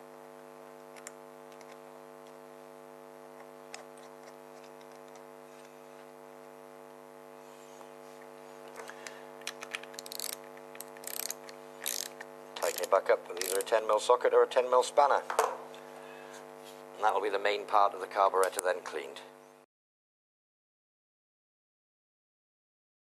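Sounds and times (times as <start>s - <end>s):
electrical mains hum: 0.0s - 19.7s
small metal parts clicking: 9.4s - 13.7s
socket ratchet metallic rattles: 9.9s - 13.7s.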